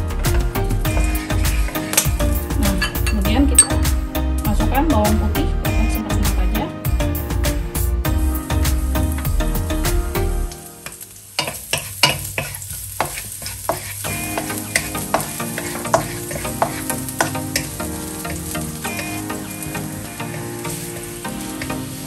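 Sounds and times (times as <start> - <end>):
garlic sizzling in hot oil: 0.0 - 4.2, 7.8 - 22.0
spatula scraping pan: 0.2 - 2.1, 11.4 - 22.0.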